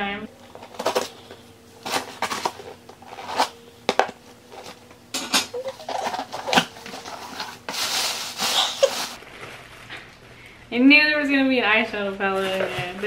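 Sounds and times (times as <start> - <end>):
paper and packing rustling: 0.4 - 4.9, 5.5 - 10.2, 12.0 - 13.0
clicks and scrapes of packaging: 0.6 - 4.8.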